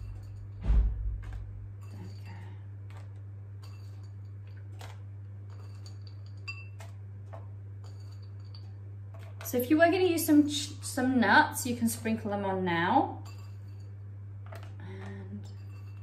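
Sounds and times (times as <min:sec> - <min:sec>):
low steady hum: 0:00.0 - 0:16.0
dull thump: 0:00.6 - 0:01.7.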